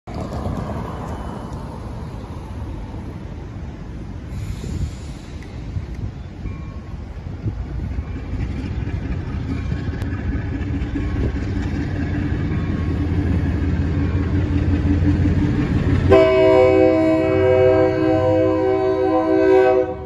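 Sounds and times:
diesel locomotive engine rumble: 0.0 - 20.0
train air horn chord: 16.1 - 20.0.

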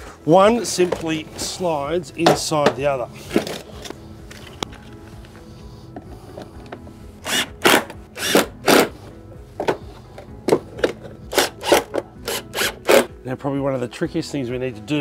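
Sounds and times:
impact driver bursts: 7.2 - 9.0, 11.3 - 13.1.

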